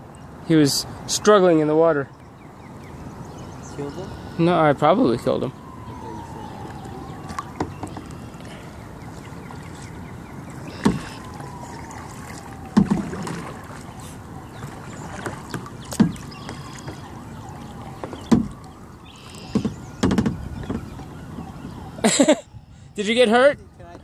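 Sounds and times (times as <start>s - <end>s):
kayak paddle splashes: 6.3s - 21.6s
water and air hiss: 10.6s - 11.6s.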